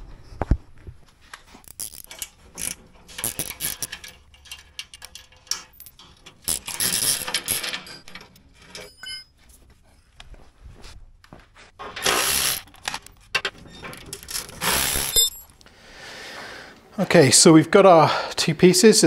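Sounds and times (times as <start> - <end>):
ratchet clicking: 1.6 - 8.2, 12.0 - 12.8
small metal knocks and rattles: 1.6 - 9.3, 11.8 - 15.6.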